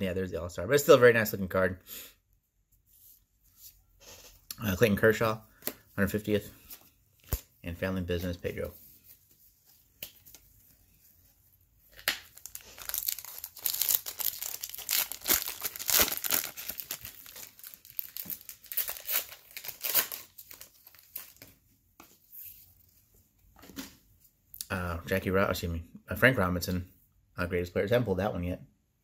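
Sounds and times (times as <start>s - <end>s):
foil wrapper tearing and crinkling: 12.0s - 21.4s.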